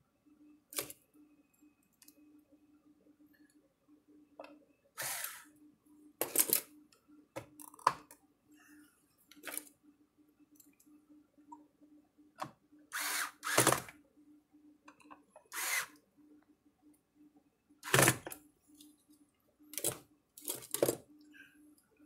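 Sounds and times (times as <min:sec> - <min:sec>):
cordless drill driving screws: 0:05.0 - 0:05.4, 0:12.9 - 0:13.9, 0:15.5 - 0:15.9.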